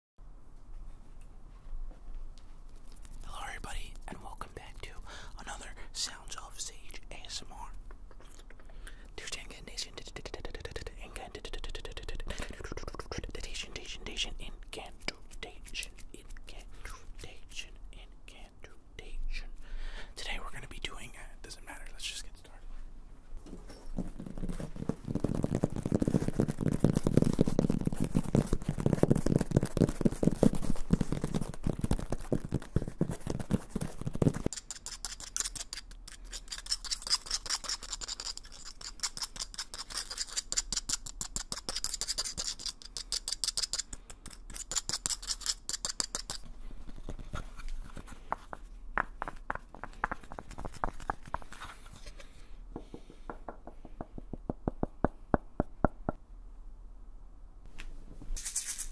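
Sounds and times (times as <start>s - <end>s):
nails scratching wooden bowl: 9.2s - 14.2s, 24.4s - 47.8s, 48.4s - 52.2s
crisp taps on a block: 48.3s - 51.4s, 52.8s - 56.1s
fingertips tapping on a pad: 48.3s - 51.5s, 52.8s - 56.2s.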